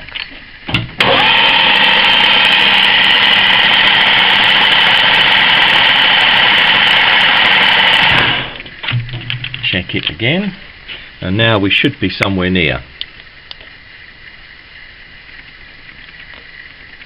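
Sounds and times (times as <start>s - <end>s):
lathe running: 1.0s - 8.7s.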